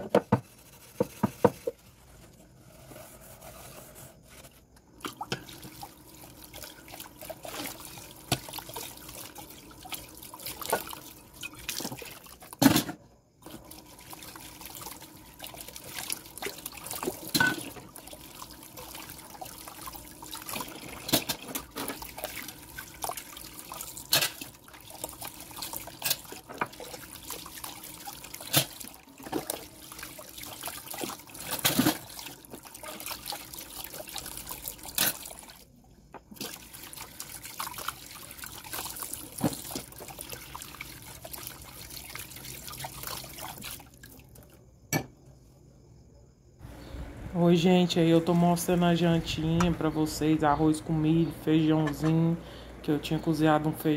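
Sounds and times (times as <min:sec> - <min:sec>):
water running from tap: 0:05.0 - 0:12.5, 0:13.4 - 0:35.6, 0:36.4 - 0:44.0
metal pots and utensils clinking: 0:17.3 - 0:17.8, 0:20.9 - 0:22.0, 0:24.1 - 0:24.5.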